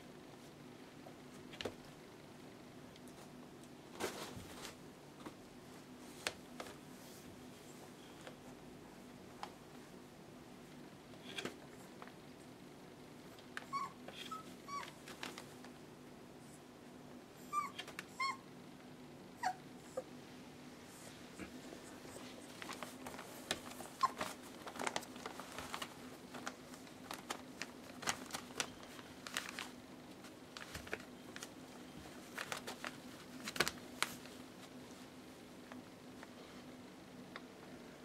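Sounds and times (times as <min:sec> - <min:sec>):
puppies scrabbling on newspaper: 0:13.5 - 0:15.8, 0:21.4 - 0:35.2
puppies whimpering: 0:17.4 - 0:18.4, 0:24.0 - 0:24.2.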